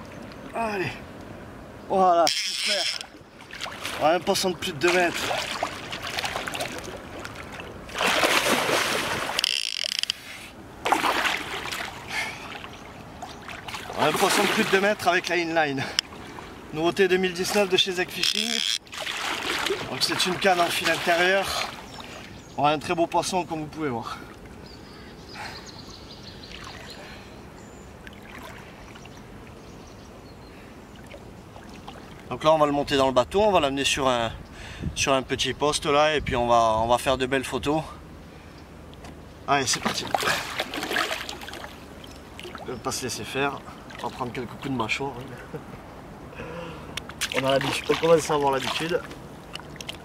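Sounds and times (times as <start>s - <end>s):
water lapping and splashing: 2.4s - 22.5s, 24.0s - 29.9s, 30.5s - 32.5s, 38.9s - 45.6s, 46.3s - 50.0s
fish splashing at the surface: 5.1s - 9.4s, 10.8s - 14.8s, 18.9s - 21.8s, 39.8s - 41.8s, 47.0s - 50.0s.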